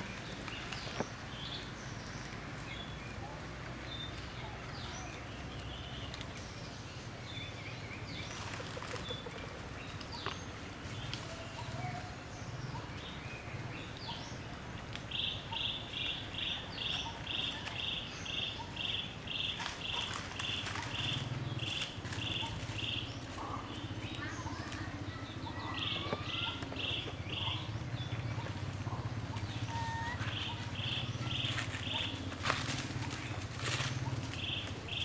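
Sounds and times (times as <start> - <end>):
birds chirping: 0.0 - 35.0.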